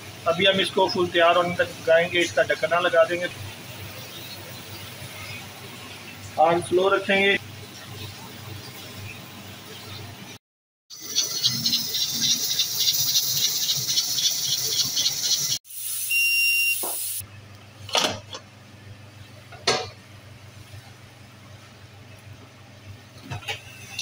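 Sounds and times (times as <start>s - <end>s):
pressure cooker steam hissing: 10.9s - 17.2s
thin steam whistle: 15.7s - 17.2s.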